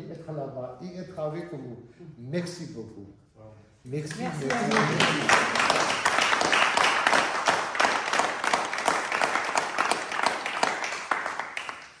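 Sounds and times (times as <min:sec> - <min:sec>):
people clapping: 0:04.1 - 0:12.0.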